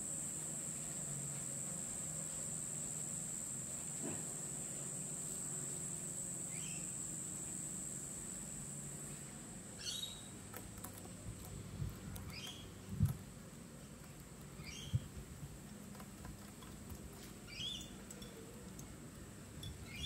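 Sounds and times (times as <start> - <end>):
insects droning: 0.0 - 20.0.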